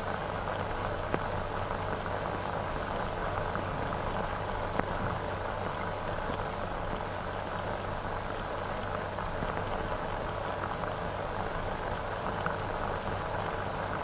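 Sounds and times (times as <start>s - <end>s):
film soundtrack hiss and hum: 0.0s - 14.0s.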